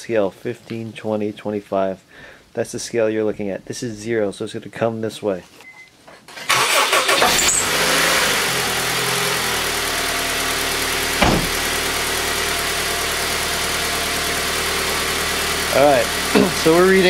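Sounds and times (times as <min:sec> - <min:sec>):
car engine idling: 0:07.2 - 0:17.0
thump: 0:11.2 - 0:11.6.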